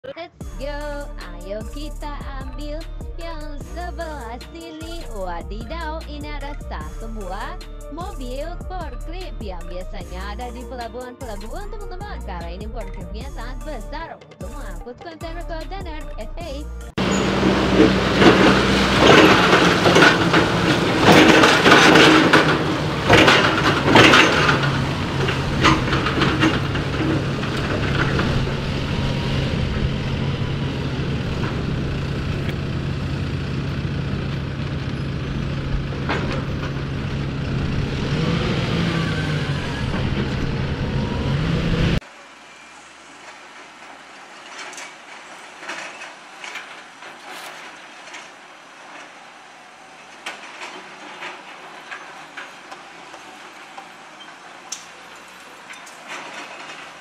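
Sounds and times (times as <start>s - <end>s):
forklift engine hum: 0.4s - 57.0s
metallic clanks and rattles: 16.9s - 42.0s, 43.2s - 57.0s.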